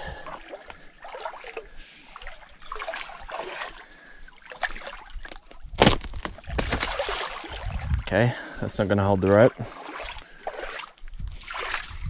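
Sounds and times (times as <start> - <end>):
water sloshing and splashing: 0.0 - 12.0.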